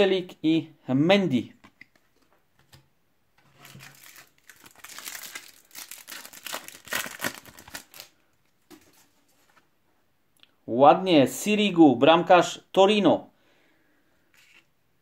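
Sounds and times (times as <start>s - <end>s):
plastic wrapper crinkling: 3.5s - 9.0s.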